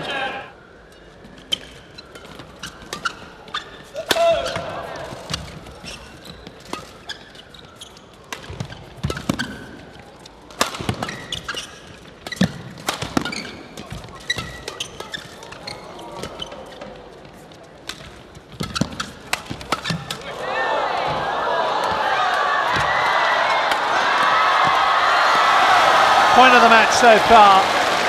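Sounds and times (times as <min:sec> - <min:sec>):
shoes squeaking on court: 0:01.3 - 0:20.2.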